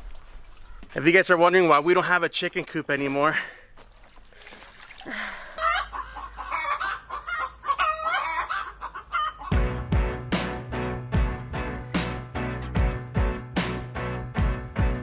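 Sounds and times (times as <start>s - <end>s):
chickens clucking: 5.6s - 9.9s
music with heavy bass beat: 9.5s - 15.0s.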